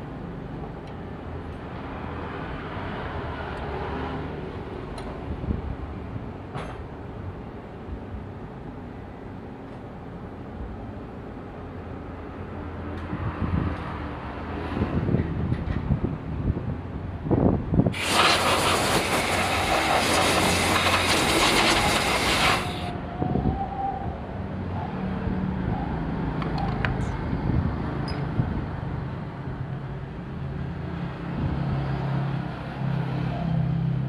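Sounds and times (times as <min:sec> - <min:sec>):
loud hiss: 0:17.9 - 0:22.9.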